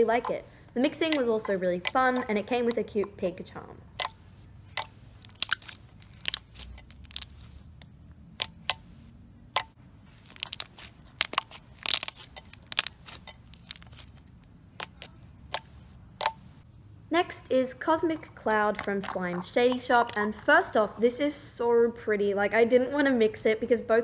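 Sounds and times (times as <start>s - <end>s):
slime squeezed by hand: 4.7s - 7.6s, 10.2s - 14.2s.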